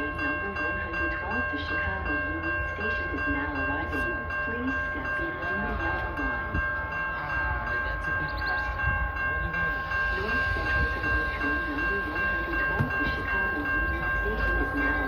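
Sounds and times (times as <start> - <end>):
high-pitched ringing tone: 0.0 - 15.0
people's voices: 0.0 - 15.0
train rumbling: 0.0 - 15.0.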